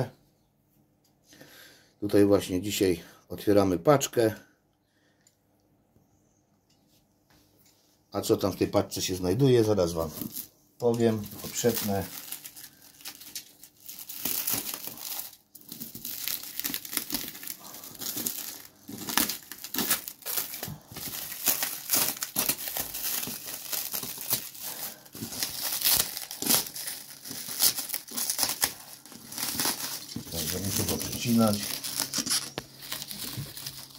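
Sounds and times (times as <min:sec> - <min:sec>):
plastic film crinkling and tearing: 0:09.6 - 0:33.9.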